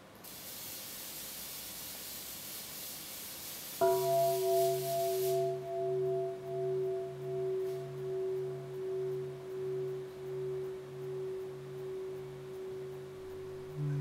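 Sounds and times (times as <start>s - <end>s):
faint third tone: 3.8s - 14.0s
steady higher tone: 3.8s - 14.0s
low pulsing tone: 4.0s - 14.0s.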